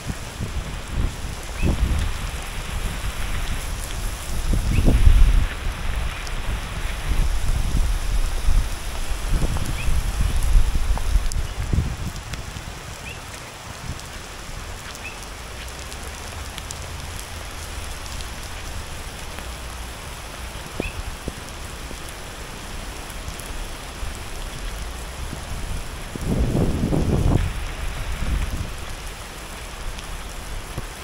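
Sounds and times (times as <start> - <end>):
rain falling on wet road: 0.0 - 31.0.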